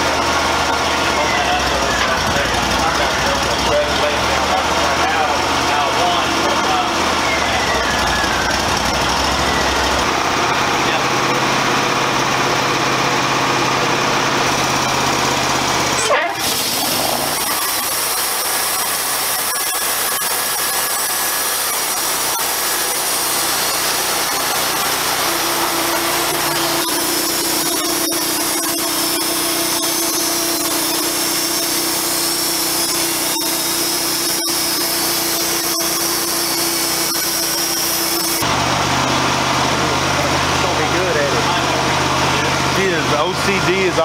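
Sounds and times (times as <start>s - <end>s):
steady hum: 0.0s - 38.6s.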